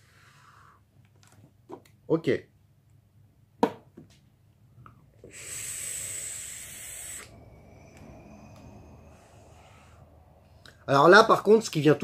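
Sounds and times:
breathy exhale: 0:00.0 - 0:00.8, 0:05.2 - 0:10.9
vape airy hiss with whistle: 0:05.2 - 0:10.0.

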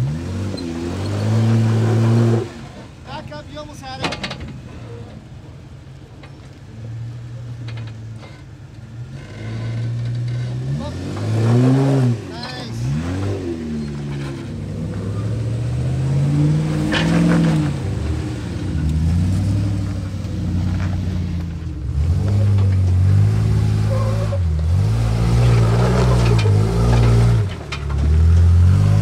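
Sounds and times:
engine revving: 0:00.0 - 0:02.9, 0:09.0 - 0:29.0.

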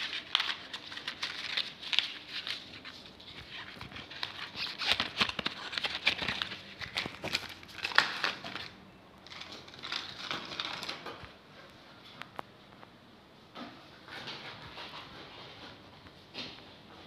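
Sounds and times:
bag rustling and crinkling: 0:00.0 - 0:11.1.

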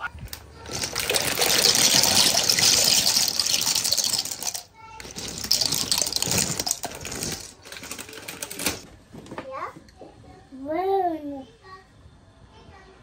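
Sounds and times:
dry pasta pouring into water: 0:00.6 - 0:08.8.

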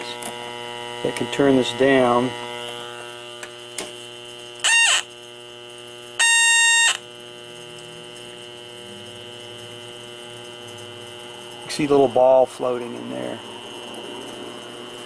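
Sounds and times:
leak detector humming: 0:00.0 - 0:15.0
alarm squawks: 0:04.6 - 0:05.2, 0:06.2 - 0:07.1.

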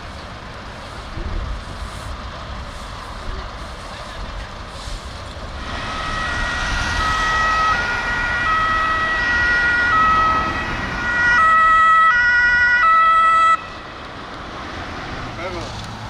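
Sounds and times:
two-tone emergency siren: 0:05.6 - 0:14.0.

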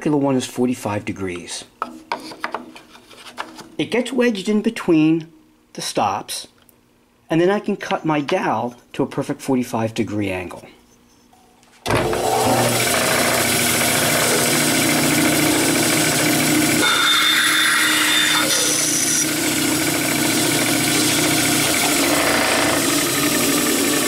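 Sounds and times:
band saw running: 0:11.9 - 0:24.0
saw blade cutting wood: 0:12.1 - 0:24.0.

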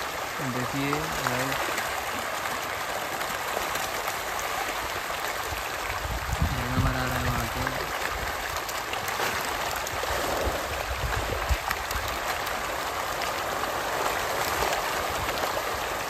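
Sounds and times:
fish thrashing and splashing: 0:07.6 - 0:16.0.

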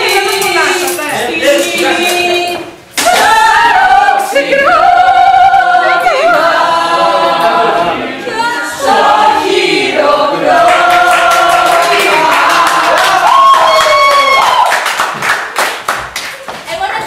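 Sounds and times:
women singing together: 0:00.0 - 0:13.5.

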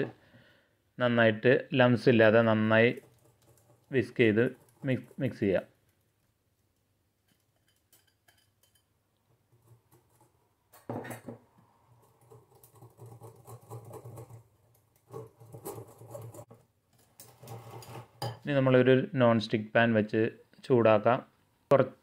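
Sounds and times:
soft wet stirring: 0:02.2 - 0:18.5.

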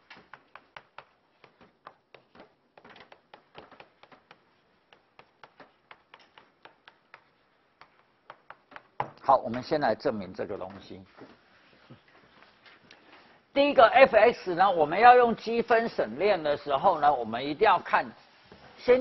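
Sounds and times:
chalk tapping and scraping: 0:00.0 - 0:09.8.

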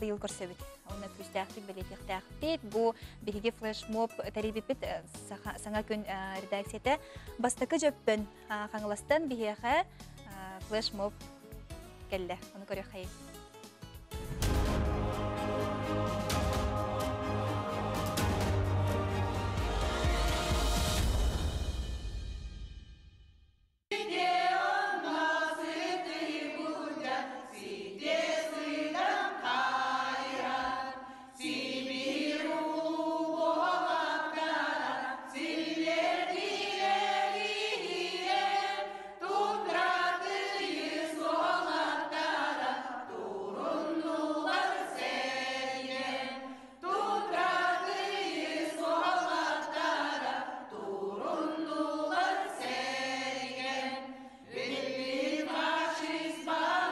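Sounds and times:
group of voices singing: 0:14.4 - 0:21.1, 0:23.9 - 0:56.9.

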